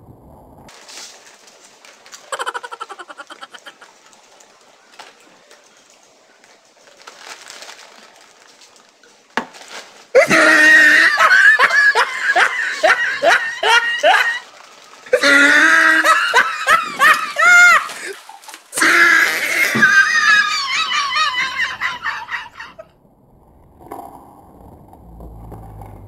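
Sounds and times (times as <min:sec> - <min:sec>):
young people laughing: 0:02.3 - 0:03.9, 0:10.2 - 0:14.5, 0:15.1 - 0:22.9.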